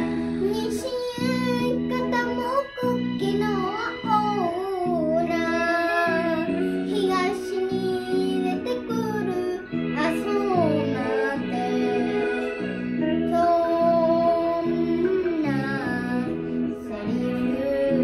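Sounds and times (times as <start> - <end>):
girl singing: 0.0 - 18.0
karaoke backing track with guitar: 0.0 - 18.0.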